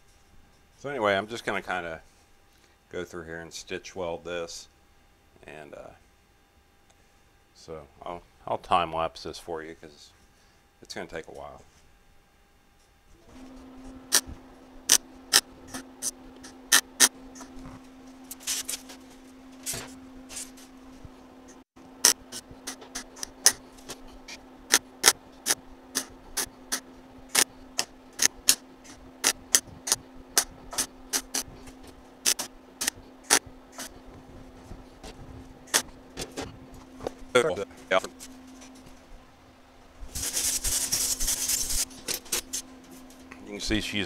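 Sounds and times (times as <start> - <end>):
steady hum: 0.0 - 44.0
welder crackling zaps: 14.1 - 17.6, 18.2 - 19.0, 22.0 - 31.5, 32.2 - 34.0, 35.6 - 36.0, 40.1 - 42.6.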